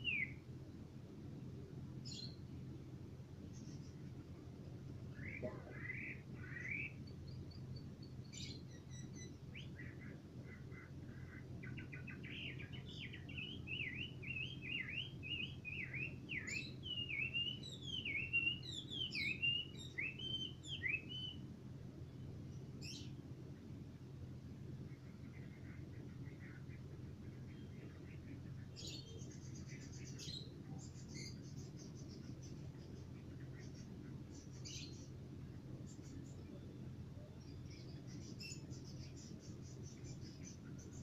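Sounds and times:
bird singing whistles: 0.0 - 0.4, 13.0 - 21.4
faint low hum: 0.0 - 41.0.

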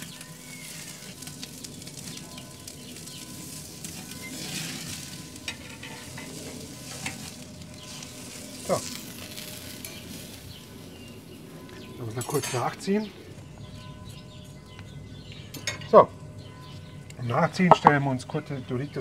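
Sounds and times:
steak sizzling on a grill: 0.0 - 13.6.

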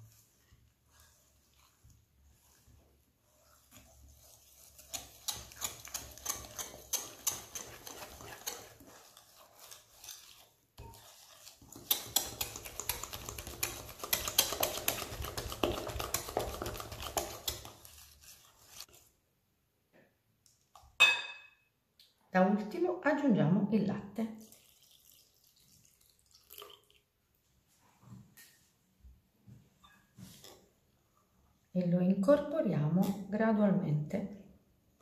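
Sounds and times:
whisk clicking against glass bowl: 4.7 - 9.0, 10.8 - 17.9.

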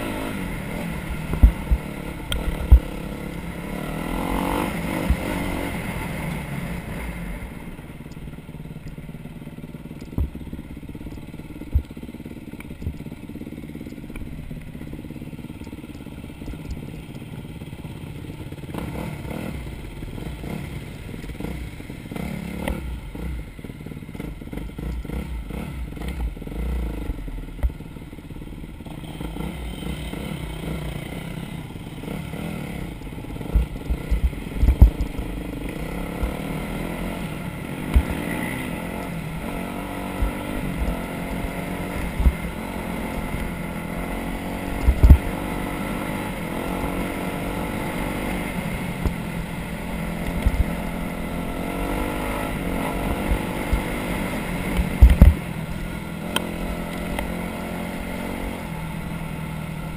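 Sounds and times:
off-road vehicle engine running: 0.0 - 59.9
sharp thumps: 54.7 - 55.5.

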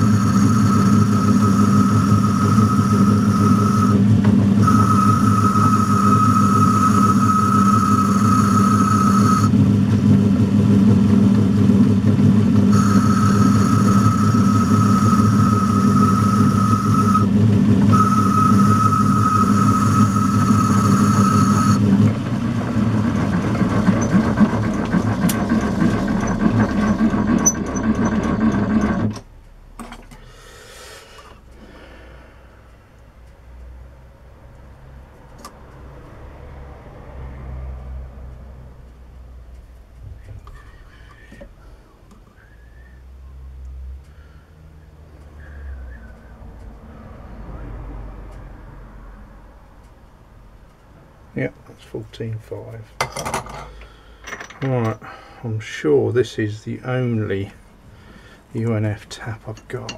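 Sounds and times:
high whine of lathe boring: 0.0 - 29.2
lathe motor hum: 0.0 - 29.2.

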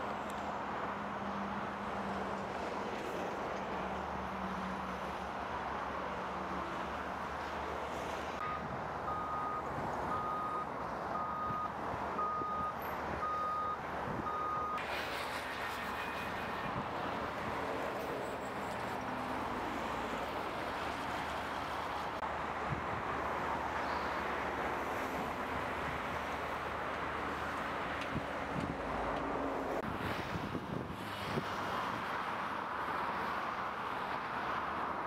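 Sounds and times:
reversing alarm beeping: 8.4 - 14.8.

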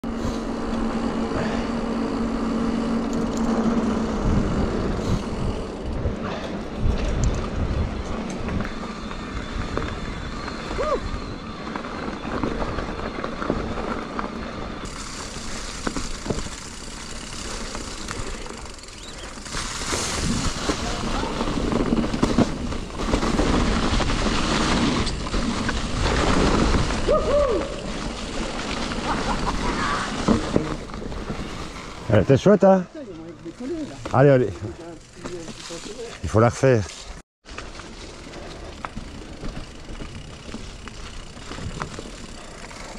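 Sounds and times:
mountain bike trail noise: 0.0 - 42.9
wind rumble: 3.4 - 16.6, 19.0 - 32.1.

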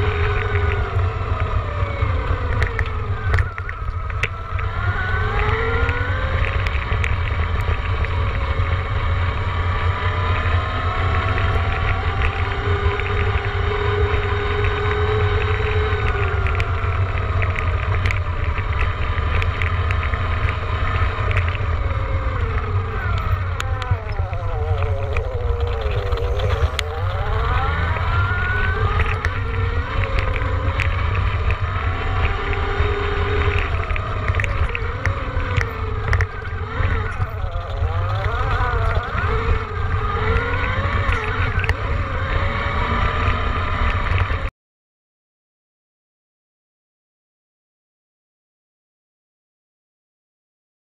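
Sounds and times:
wind rumble on microphone: 0.0 - 44.5
electric motor whining: 21.3 - 43.3.

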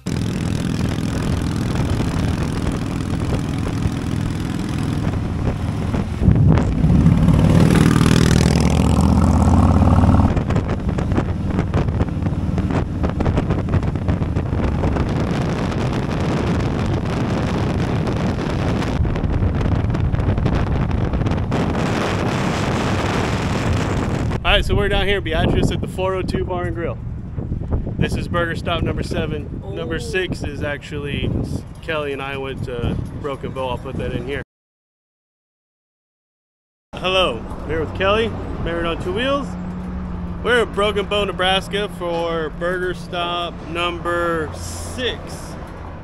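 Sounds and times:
motorcycles running: 0.0 - 34.4, 37.0 - 46.0
wind buffeting microphone: 0.2 - 34.4.

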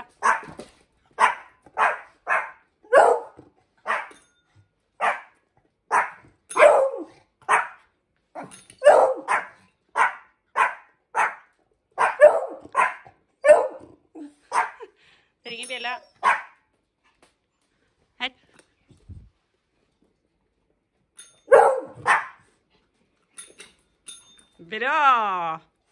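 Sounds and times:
dog barking: 0.2 - 0.6, 1.2 - 4.2, 5.0 - 7.8, 8.4 - 13.9, 14.5 - 14.8, 16.2 - 16.6, 21.5 - 22.4.

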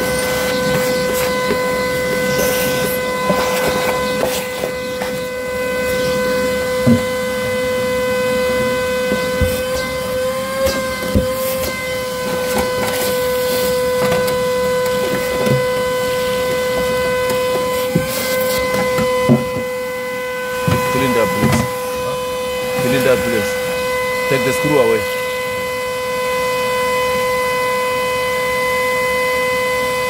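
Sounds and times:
shop vacuum running: 0.0 - 30.0.

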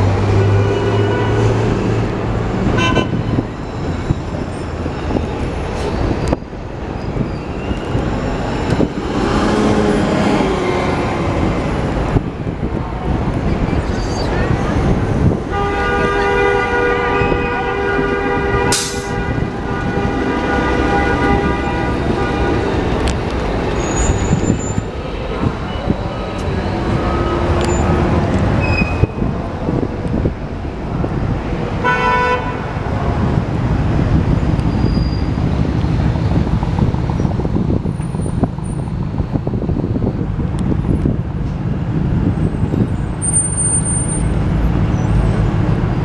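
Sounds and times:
buses and cars passing: 0.0 - 46.0
dual-tone car horn: 2.7 - 3.4, 15.4 - 23.0, 31.8 - 32.7.

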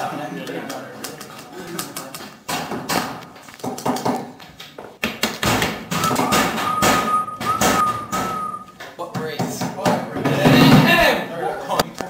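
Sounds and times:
steady high tone: 6.0 - 8.7.

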